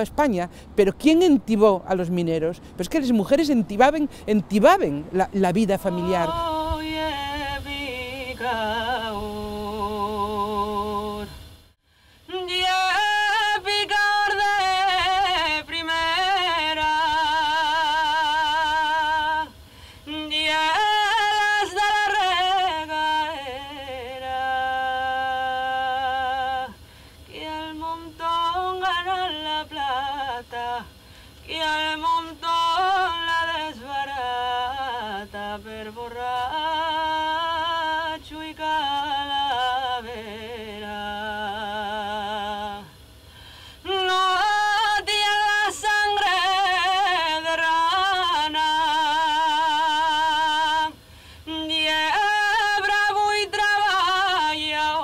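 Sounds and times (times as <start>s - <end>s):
person singing slowly: 5.9s - 11.4s, 12.3s - 43.0s, 43.8s - 55.0s.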